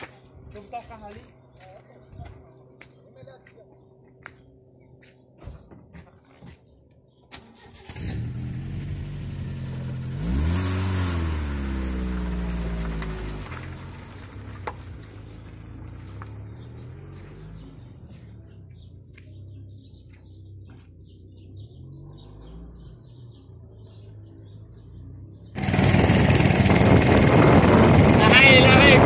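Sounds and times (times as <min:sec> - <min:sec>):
vehicle engine idling: 0:11.4 - 0:21.8, 0:23.3 - 0:29.0.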